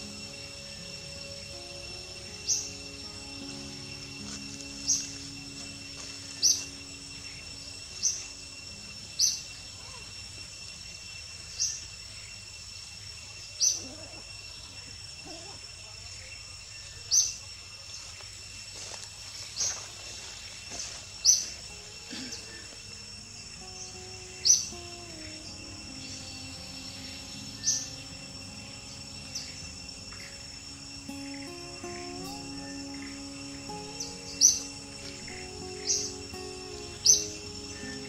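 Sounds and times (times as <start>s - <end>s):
high insect drone: 0.0s - 38.0s
sharp high chirp: 23.5s - 38.0s.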